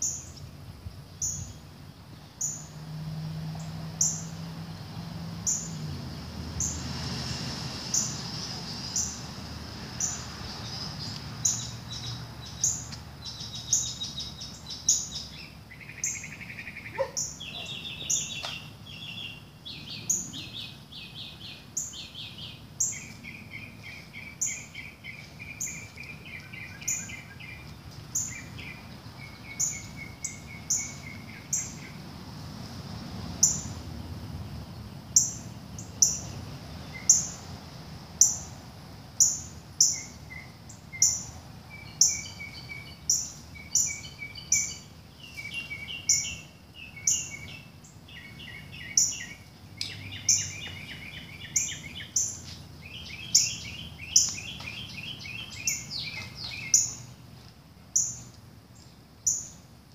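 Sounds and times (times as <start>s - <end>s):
bird chip alarm calls: 10.0s - 32.0s, 39.2s - 57.0s.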